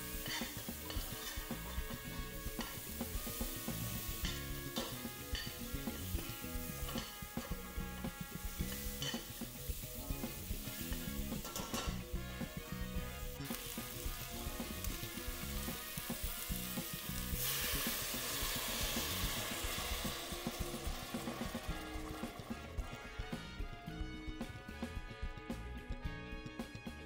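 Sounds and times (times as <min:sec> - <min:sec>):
liquid hissing in hot pot: 0:00.0 - 0:11.7, 0:13.2 - 0:22.8
onions sizzling in a pot: 0:00.0 - 0:23.3
background music: 0:00.0 - 0:27.0.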